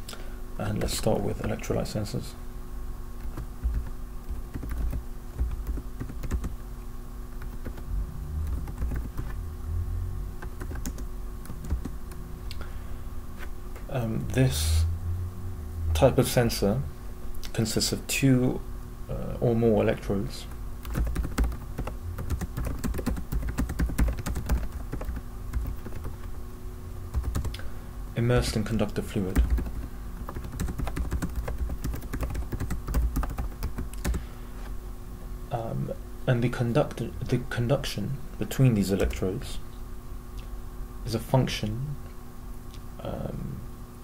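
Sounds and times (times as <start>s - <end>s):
faint steady hum: 0.0s - 44.0s
keyboard typing: 3.2s - 6.6s, 7.4s - 9.4s, 10.4s - 12.2s, 20.8s - 26.3s, 27.1s - 27.6s, 29.3s - 34.2s.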